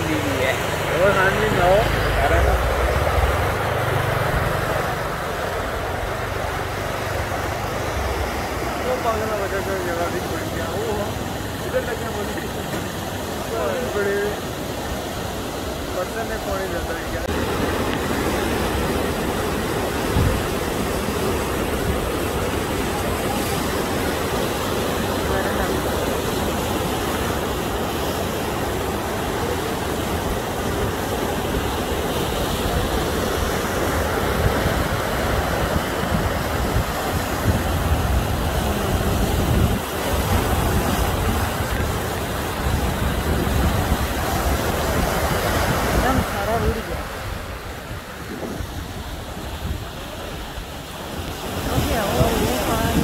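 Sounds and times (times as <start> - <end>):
floodwater rushing: 0.0 - 53.0
wind buffeting microphone: 30.3 - 53.0.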